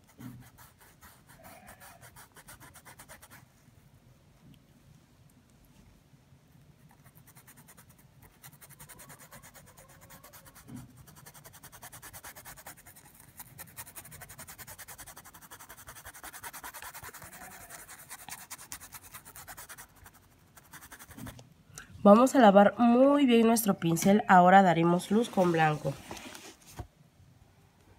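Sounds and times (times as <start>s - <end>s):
paintbrush scratching on cloth: 0.0s - 3.5s, 6.8s - 21.4s, 25.0s - 26.8s.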